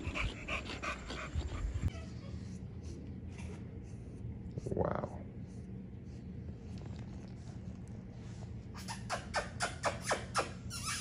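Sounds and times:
puppy yipping: 8.8s - 11.0s.

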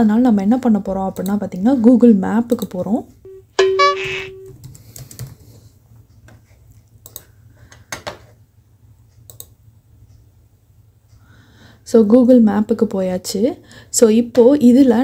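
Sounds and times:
short steady tone: 3.3s - 4.5s
computer keyboard keystrokes: 4.5s - 5.4s, 7.0s - 7.3s, 9.3s - 9.6s.

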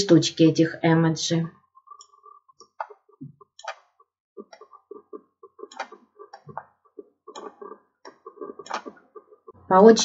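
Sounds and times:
computer mouse clicking: 3.6s - 6.7s, 7.3s - 9.0s.

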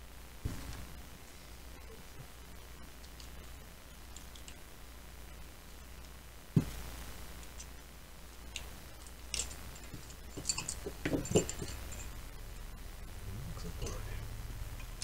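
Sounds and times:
metal clinks and knocks: 9.3s - 12.2s
metal parts being handled: 9.3s - 12.2s.

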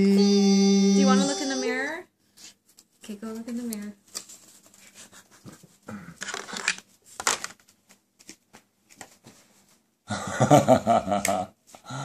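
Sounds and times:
person speaking: 0.0s - 2.0s
rustling: 2.4s - 9.8s.

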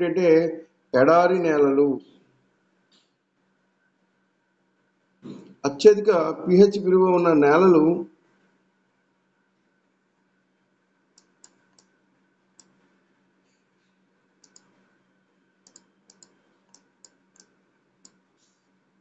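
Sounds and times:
faint steady hum: 0.0s - 19.0s
faint small clicks: 2.9s - 3.2s, 11.2s - 11.9s, 12.6s - 12.8s, 13.4s - 14.8s, 15.6s - 18.7s.

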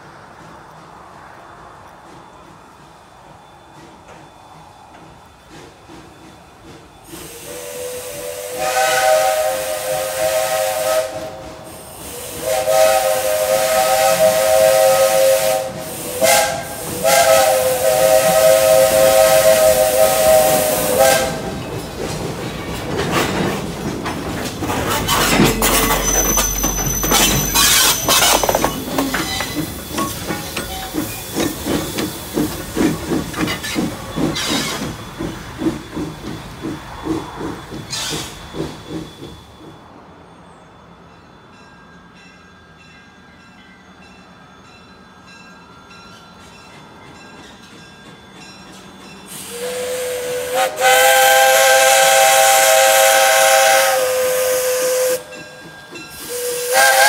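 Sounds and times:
hiss of steam: 5.5s - 21.8s, 24.9s - 39.6s, 49.3s - 57.0s
locomotive exhaust beats: 5.5s - 39.8s
steam locomotive whistle: 7.1s - 21.6s, 24.8s - 32.1s, 49.3s - 57.0s
wheels clicking over rail joints: 21.3s - 39.2s.

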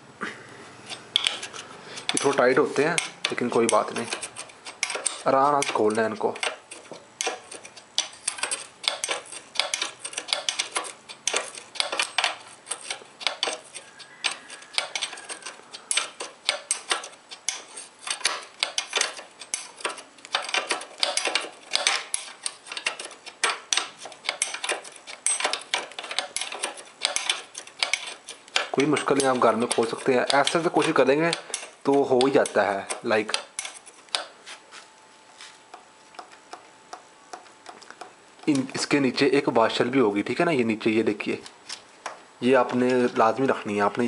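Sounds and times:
spanner clinking on metal nut: 1.1s - 34.3s.

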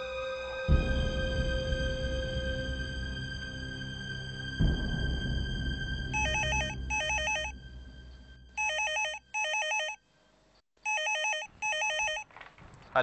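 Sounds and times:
background music: 0.0s - 9.8s
telephone ringer warbling: 6.2s - 7.5s, 8.6s - 10.0s, 10.9s - 12.3s.

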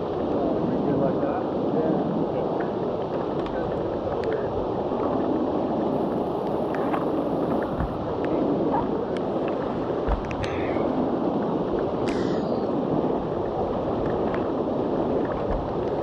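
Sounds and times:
paddles knocking and clicking: 9.4s - 10.8s, 15.2s - 16.0s.

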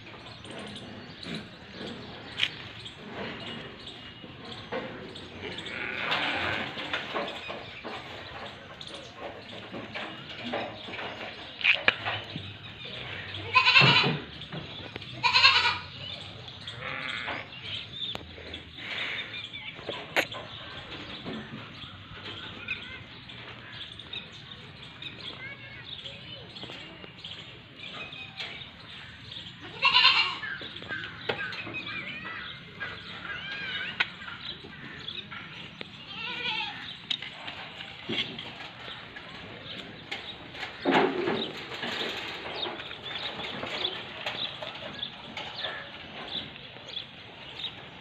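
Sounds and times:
goat bleating: 5.5s - 6.9s, 13.3s - 14.3s, 15.2s - 16.0s, 29.6s - 30.5s, 36.1s - 36.9s.

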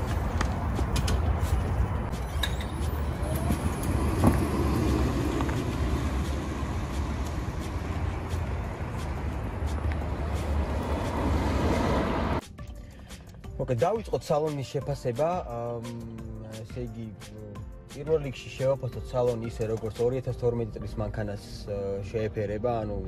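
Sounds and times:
car tyre and vehicle noise: 0.0s - 12.4s.

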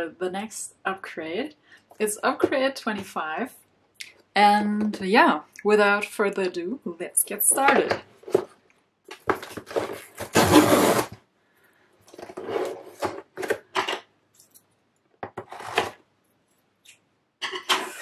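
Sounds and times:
cardboard box scraping and rubbing: 9.4s - 11.2s, 12.2s - 13.3s.

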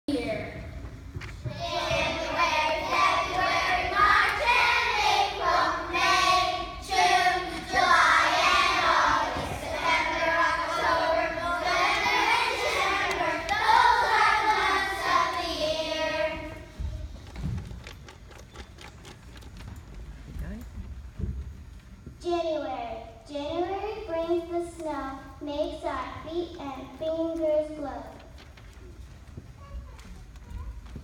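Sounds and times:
children singing together: 1.5s - 16.8s.

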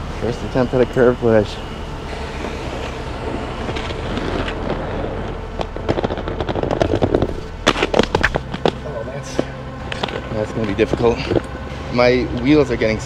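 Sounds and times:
skate wheels rolling on concrete: 2.1s - 11.5s.

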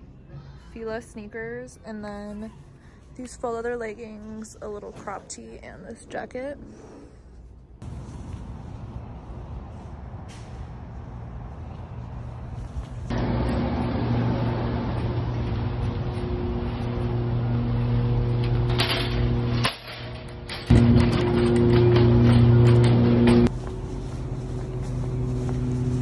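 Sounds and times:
road rumble: 7.6s - 26.0s.

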